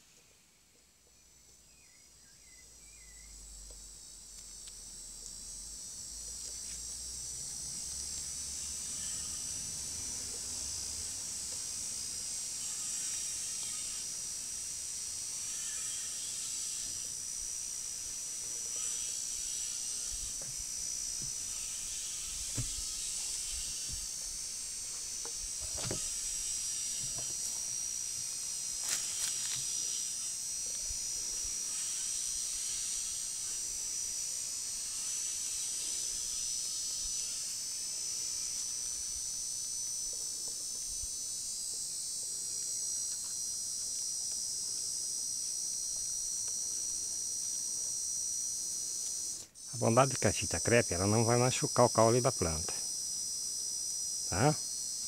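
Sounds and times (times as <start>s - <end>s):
insects shrilling: 1.7s - 55.0s
knocks and rustles of bamboo sticks: 25.1s - 26.2s, 27.0s - 27.7s.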